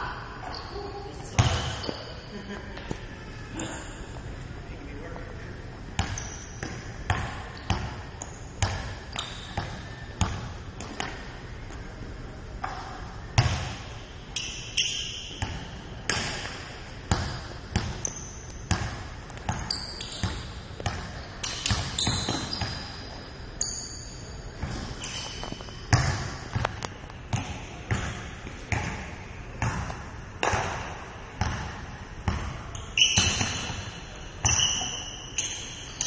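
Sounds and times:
basketball bouncing on wooden court: 1.4 - 2.0, 6.0 - 11.3, 12.6 - 23.2, 24.6 - 36.0
short high squeaks: 19.7 - 20.4, 21.4 - 25.9, 32.8 - 33.6, 34.4 - 36.0.

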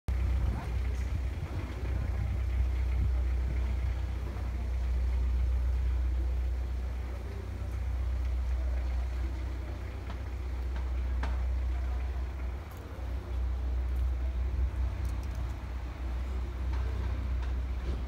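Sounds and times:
faint clicks: 9.8 - 15.6.

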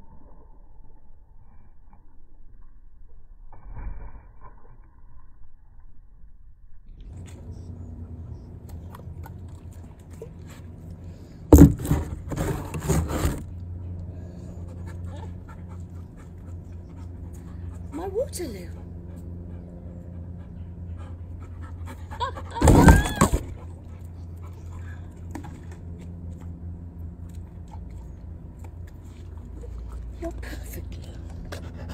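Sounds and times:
low background hum: 4.7 - 31.9.

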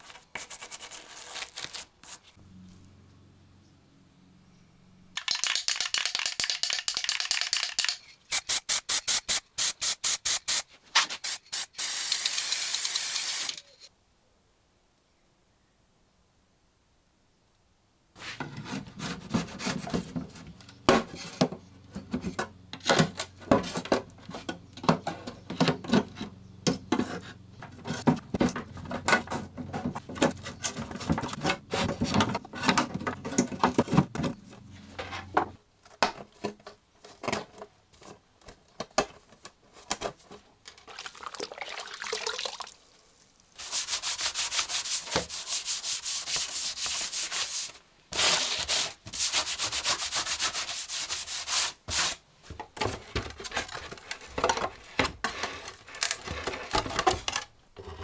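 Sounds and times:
paint scraper scraping wood: 18.2 - 22.4, 23.4 - 34.1, 43.6 - 52.2.

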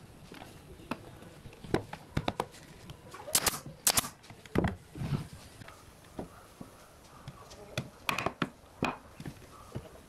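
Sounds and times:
nail gun firing into wood: 3.3 - 4.2.

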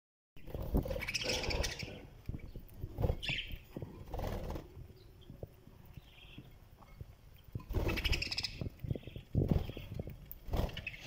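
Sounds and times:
budgerigars chirping: 0.9 - 2.5, 3.2 - 3.6, 7.7 - 11.0.

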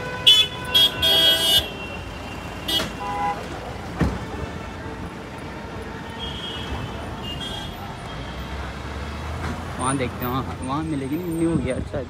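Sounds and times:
traffic passing with road noise: 0.0 - 12.0
thump: 3.9 - 4.3.

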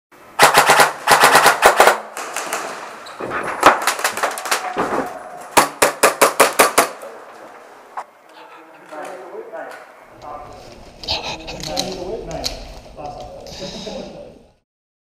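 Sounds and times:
airsoft guns firing: 0.4 - 7.2.

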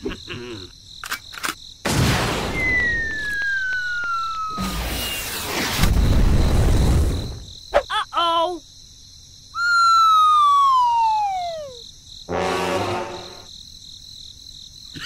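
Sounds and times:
whistle tone sliding down: 2.5 - 5.9, 9.6 - 11.8
cartoon warbling chirps: 9.6 - 11.8.

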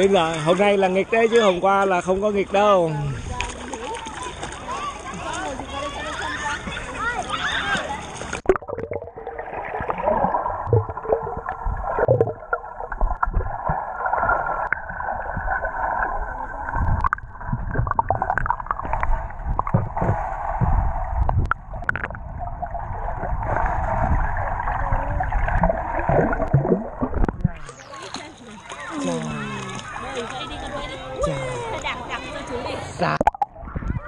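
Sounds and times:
muffled underwater water rushing: 3.2 - 34.0
clicks and thumps of legs in water: 16.9 - 22.2.

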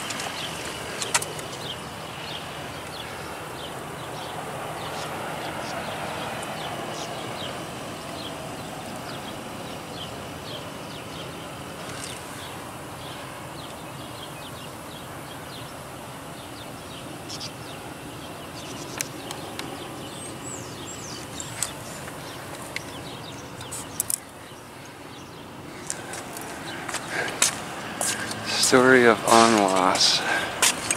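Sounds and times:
background noise rush: 0.0 - 30.9
small birds chirping: 0.0 - 30.9.

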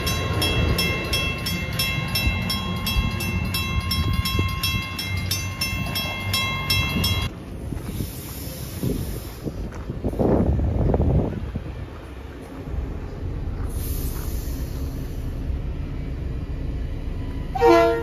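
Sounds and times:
crossing warning bell ringing: 0.0 - 7.4, 16.9 - 18.0
passing train rumble: 0.0 - 18.0.

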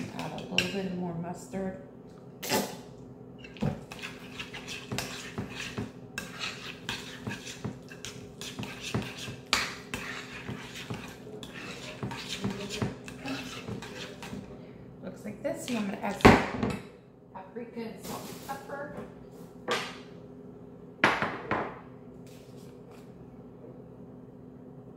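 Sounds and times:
utensil scraping a bowl: 0.0 - 0.8, 3.4 - 14.5
low steady hum: 0.0 - 24.9.

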